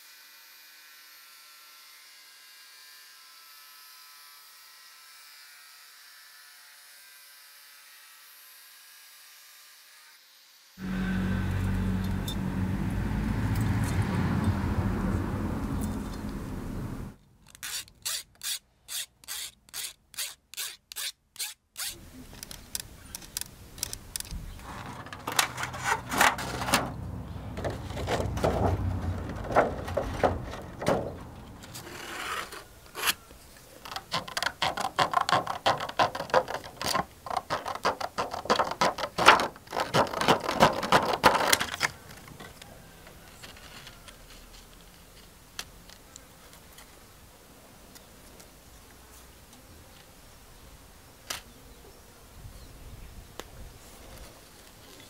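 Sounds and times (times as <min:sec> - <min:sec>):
regular clicks: 0:22.3 - 0:24.7
plastic crackling and rubbing: 0:22.3 - 0:27.0, 0:33.8 - 0:42.5.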